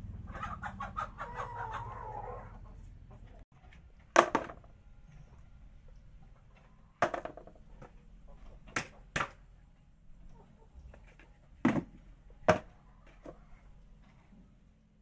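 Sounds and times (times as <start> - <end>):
plastic bucket and lid knocking: 4.1 - 4.7, 7.0 - 7.6, 11.6 - 12.7.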